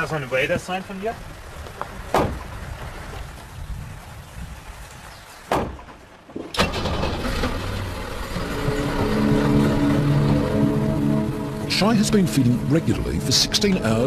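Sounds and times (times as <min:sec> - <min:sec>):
thump: 0:02.1 - 0:02.5, 0:05.5 - 0:06.0
car engine starting and running: 0:06.5 - 0:14.0
music: 0:08.5 - 0:14.0.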